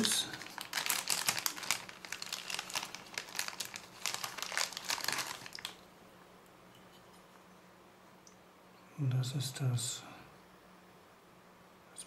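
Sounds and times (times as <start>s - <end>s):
plastic bag crinkling: 0.0s - 5.9s.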